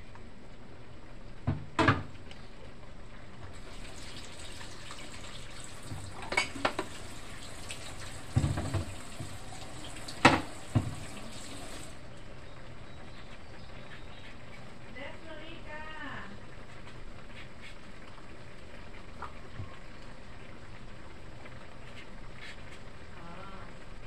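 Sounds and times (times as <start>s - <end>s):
stew simmering hiss: 2.1s - 12.2s, 13.0s - 24.0s
utensils clattering against cookware: 6.2s - 6.9s.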